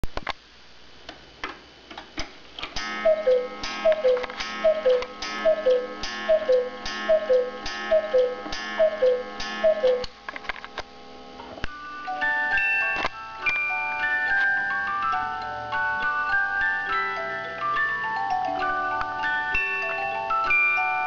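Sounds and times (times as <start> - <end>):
clock ticking: 2.8 - 10.1
cuckoo clock calls: 2.8 - 10.1.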